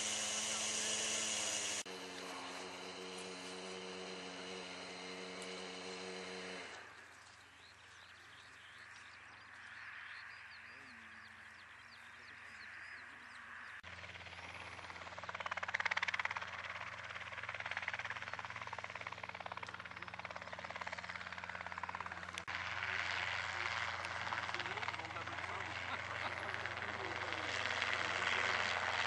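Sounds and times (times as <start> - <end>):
model helicopter hovering: 0.0 - 7.6, 13.5 - 29.0.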